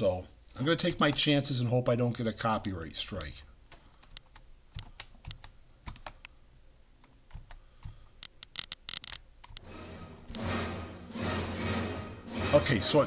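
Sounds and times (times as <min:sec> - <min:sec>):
keyboard and mouse clicks: 0:03.7 - 0:06.4, 0:07.0 - 0:09.7.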